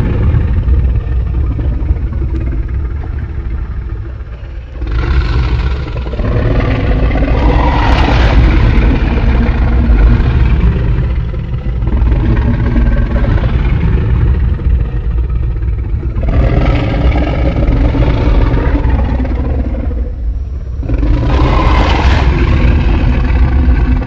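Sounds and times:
deep monster rumble: 0:00.0 - 0:24.0
monster roaring calls: 0:04.1 - 0:15.1, 0:20.8 - 0:24.0.

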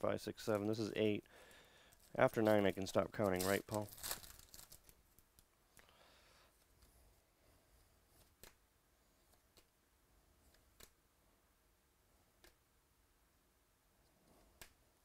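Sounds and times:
trading cards rustling: 0:01.9 - 0:05.5.

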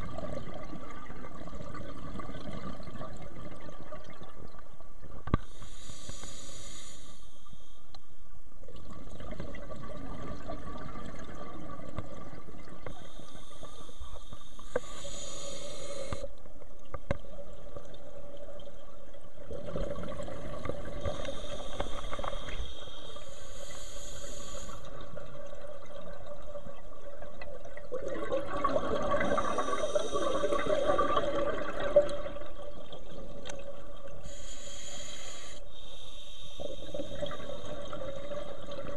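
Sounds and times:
exhaled bubbles rushing: 0:00.0 - 0:04.6, 0:08.7 - 0:12.8, 0:17.3 - 0:22.6, 0:24.9 - 0:34.2, 0:36.6 - 0:38.9
faint steady hum: 0:00.0 - 0:38.9
diver breathing through regulator: 0:14.7 - 0:16.2, 0:34.2 - 0:37.7.

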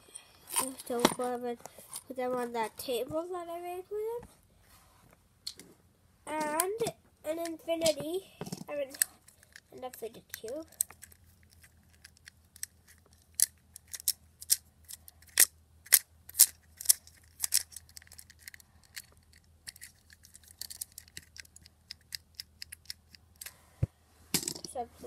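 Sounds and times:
fidget cube clicking: 0:08.9 - 0:23.5.

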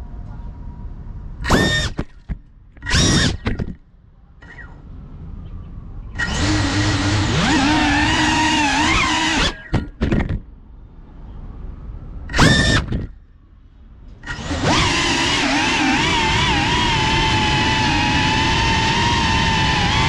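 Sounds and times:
drone motors and propellers whining: 0:01.4 - 0:03.8, 0:06.1 - 0:10.4, 0:12.2 - 0:13.2, 0:14.1 - 0:20.0.

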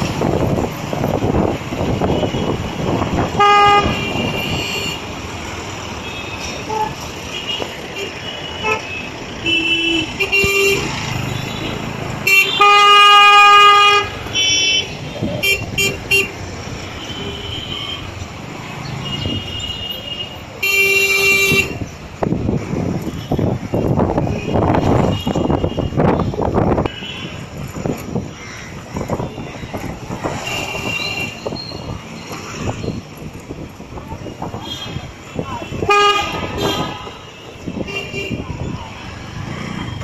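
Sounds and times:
traffic rumble: 0:00.0 - 0:40.0
car horns honking: 0:01.8 - 0:05.2, 0:06.0 - 0:18.2, 0:18.9 - 0:21.8, 0:34.5 - 0:38.5.

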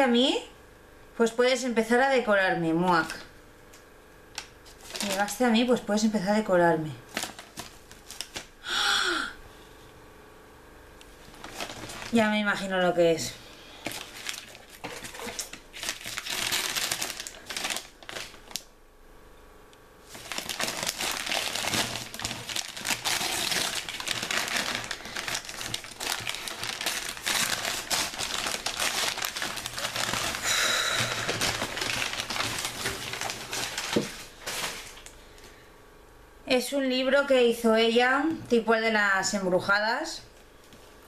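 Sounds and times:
wrapping paper crinkling: 0:04.4 - 0:05.6, 0:07.0 - 0:08.6, 0:11.2 - 0:12.7, 0:13.7 - 0:18.7, 0:20.0 - 0:35.2.

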